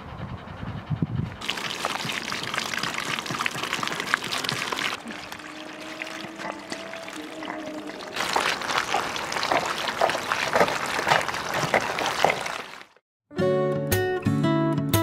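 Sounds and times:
water splashing into metal bowl: 1.4s - 13.0s.

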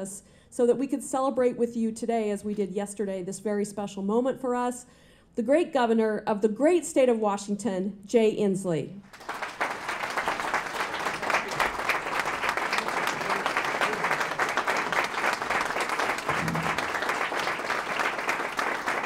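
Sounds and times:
audience applauding: 9.1s - 19.0s.

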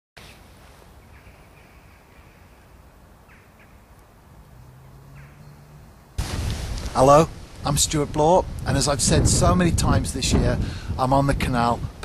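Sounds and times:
distant bird calls: 0.2s - 6.2s
outdoor background hiss: 0.2s - 12.0s.

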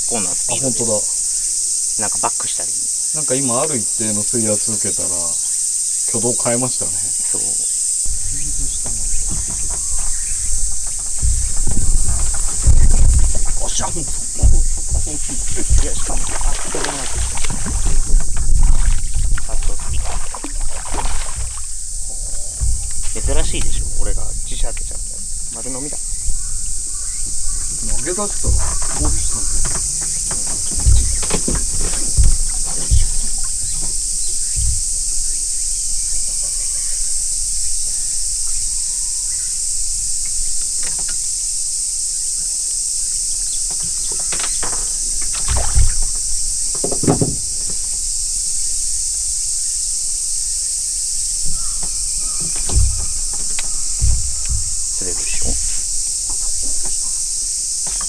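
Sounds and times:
insects buzzing: 0.0s - 58.0s
thumps and knocks on boat: 6.2s - 41.4s, 43.2s - 49.1s, 51.2s - 58.0s
fish splashing at surface: 11.1s - 21.8s, 45.2s - 46.2s.

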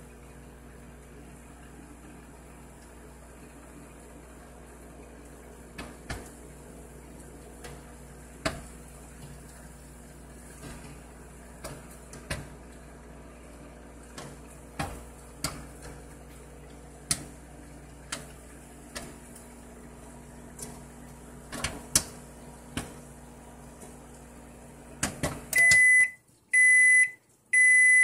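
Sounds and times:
microwave oven humming: 0.0s - 28.0s
popcorn popping: 7.5s - 9.6s, 10.3s - 12.6s, 14.1s - 24.2s.

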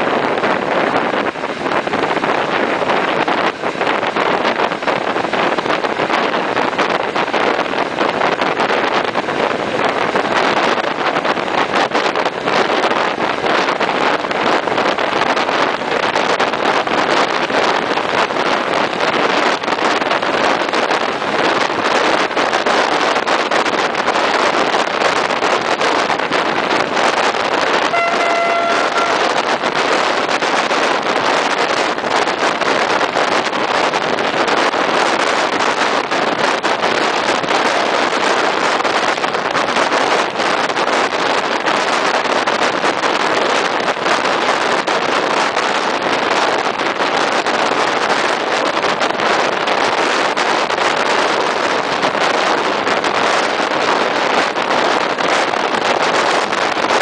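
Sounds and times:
moving train running noise: 0.0s - 57.0s
wind rushing over microphone: 0.0s - 57.0s
train horn note: 27.8s - 29.8s.

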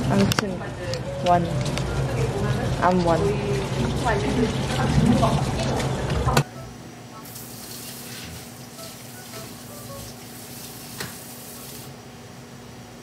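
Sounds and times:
tap water running into sink: 2.9s - 6.4s, 7.2s - 11.9s.

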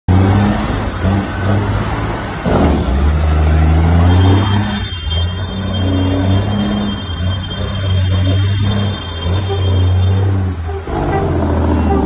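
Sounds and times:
diesel truck engine running: 5.4s - 12.0s.

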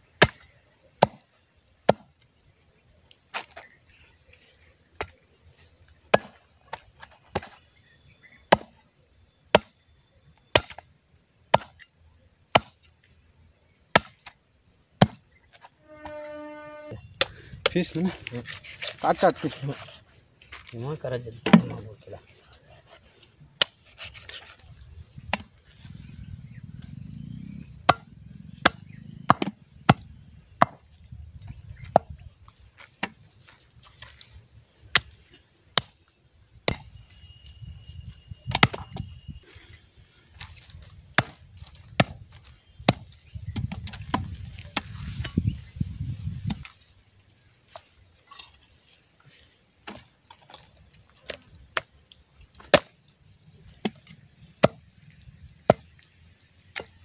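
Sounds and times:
chopper hacking meat and bone: 27.9s - 30.0s.

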